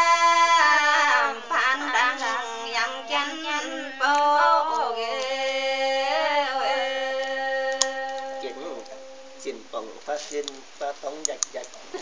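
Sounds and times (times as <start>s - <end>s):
woman singing unaccompanied: 0.0s - 9.5s.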